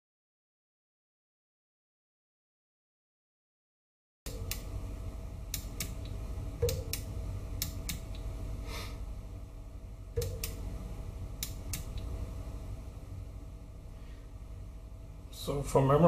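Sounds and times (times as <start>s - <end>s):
sharp clicks: 4.3s - 4.7s, 5.5s - 8.2s, 10.2s - 10.6s, 11.4s - 12.1s
power supply humming: 4.3s - 16.0s.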